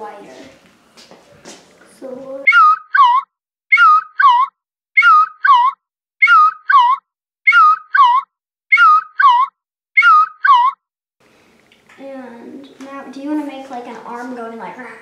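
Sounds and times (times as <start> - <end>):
two-note squeaky whistle: 2.5 - 10.8.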